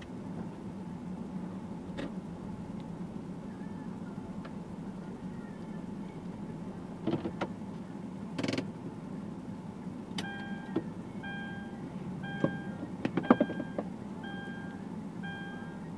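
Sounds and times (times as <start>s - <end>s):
low hum inside car: 0.0s - 15.9s
car warning chime beeping: 10.2s - 15.9s.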